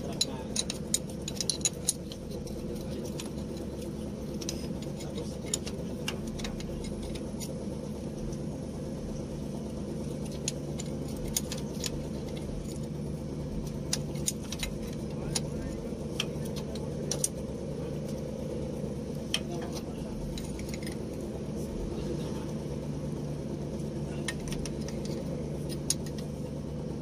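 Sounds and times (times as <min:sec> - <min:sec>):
steady low hum: 0:00.0 - 0:27.0
wrench clicking on bolts: 0:00.1 - 0:03.6.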